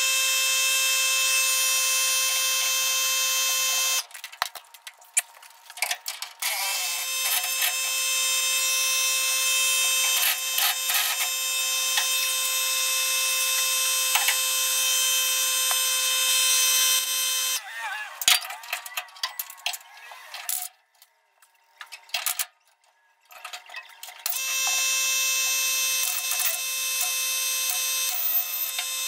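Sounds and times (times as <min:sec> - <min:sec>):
air impact wrench buzzing: 0:00.0 - 0:04.1, 0:06.4 - 0:17.6, 0:24.3 - 0:29.0.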